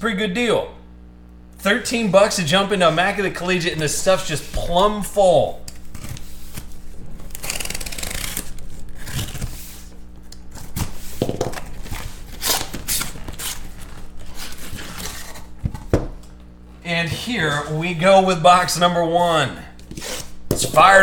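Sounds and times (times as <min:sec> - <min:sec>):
cardboard flaps tearing open: 0:05.7 - 0:16.4
knife slitting packing tape: 0:05.8 - 0:09.9, 0:12.3 - 0:15.5.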